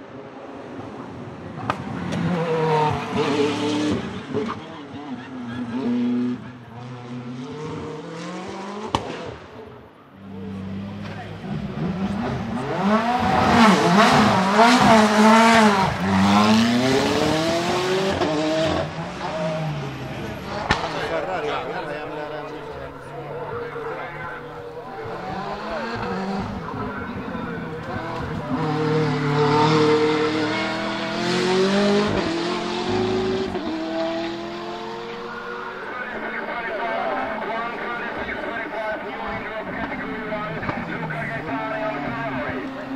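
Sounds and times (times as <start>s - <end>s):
car engine revving hard: 2.1s - 4.6s, 10.5s - 35.9s.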